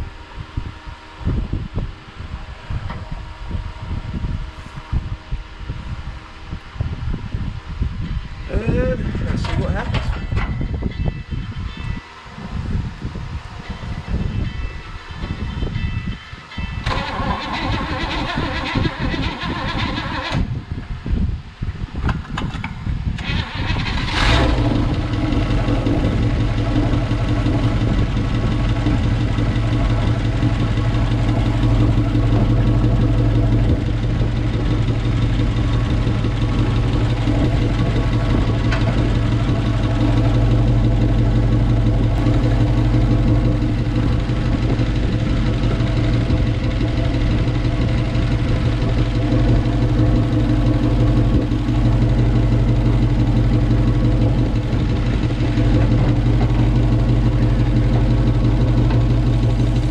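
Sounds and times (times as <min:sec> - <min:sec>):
car engine starting and idling: 0:16.8 - 0:20.8, 0:22.0 - 0:59.9.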